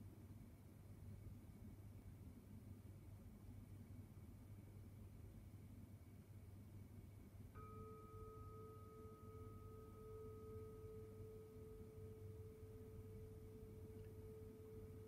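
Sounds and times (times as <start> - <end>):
bowl bell ringing: 7.6 - 15.0.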